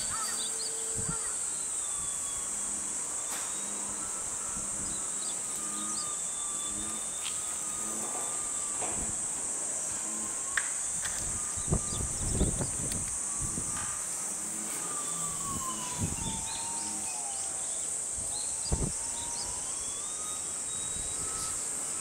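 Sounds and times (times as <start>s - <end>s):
insect chorus: 0.0s - 22.0s
model plane motor whine: 0.0s - 22.0s.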